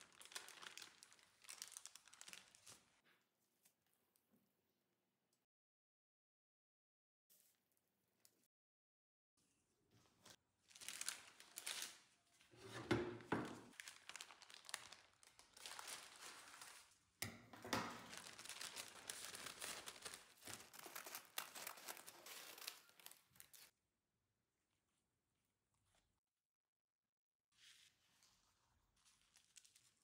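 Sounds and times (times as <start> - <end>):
baking paper crinkling: 0.0 - 3.0, 10.0 - 23.7, 27.6 - 30.0.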